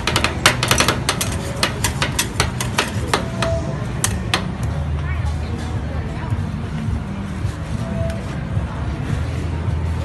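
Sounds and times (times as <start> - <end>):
metal spatulas tapping on steel: 0.0 - 4.8.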